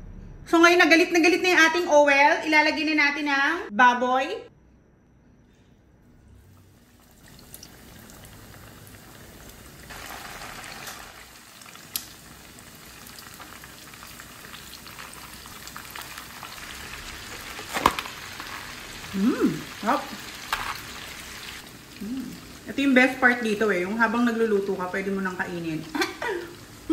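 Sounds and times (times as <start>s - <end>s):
oil sizzling and bubbling: 6.2s - 26.9s.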